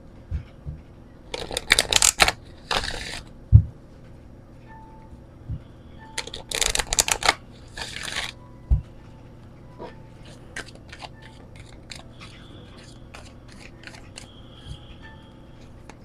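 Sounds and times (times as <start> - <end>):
cards clicking: 1.3 - 3.2, 6.2 - 8.4, 10.6 - 14.3
cards riffling: 1.3 - 3.3, 6.2 - 8.4, 10.3 - 14.3.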